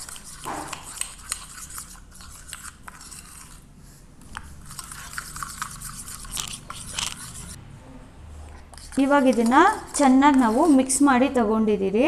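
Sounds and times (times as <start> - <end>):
spoon scraping a steel cup: 0.0 - 3.6, 4.4 - 7.6, 8.6 - 11.0.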